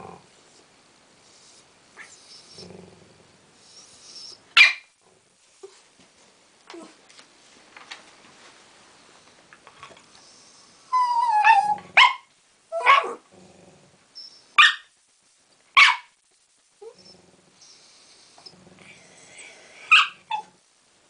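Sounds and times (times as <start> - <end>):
dog barking: 4.6 - 4.9, 14.6 - 14.9, 15.8 - 16.1
dog whining: 10.9 - 13.2, 19.2 - 20.6.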